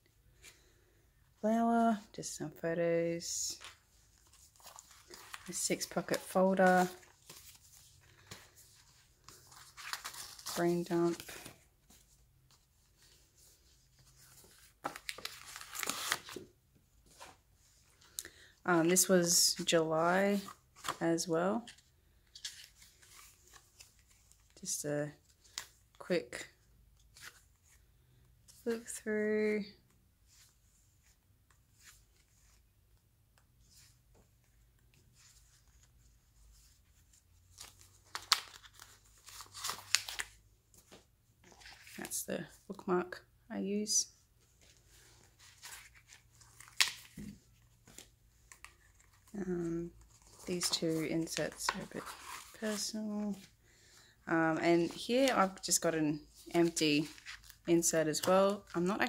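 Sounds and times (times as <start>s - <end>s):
crisp paper handling: 3.5s - 18.2s, 33.6s - 42.2s, 44.6s - 53.6s
paper pages rustling: 3.5s - 18.2s, 18.9s - 21.0s, 21.6s - 24.6s, 33.6s - 42.2s, 44.4s - 53.6s, 54.7s - 58.8s.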